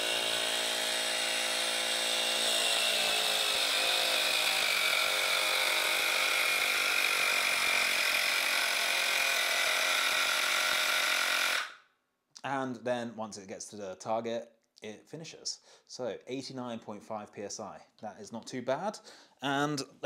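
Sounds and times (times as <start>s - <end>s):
electric pump motor buzzing: 0.0s - 11.7s.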